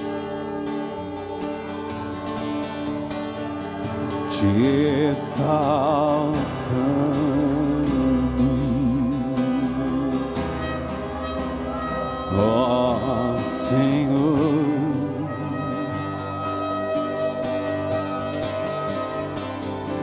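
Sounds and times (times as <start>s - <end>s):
acoustic guitar: 0.0s - 20.0s
sustained keyboard chords: 0.0s - 20.0s
voices singing: 0.0s - 20.0s.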